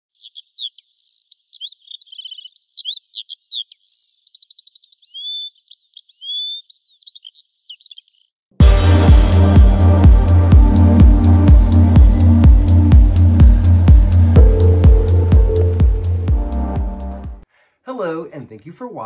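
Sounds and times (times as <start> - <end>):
songbird chirping and trilling: 0.1 - 8.4.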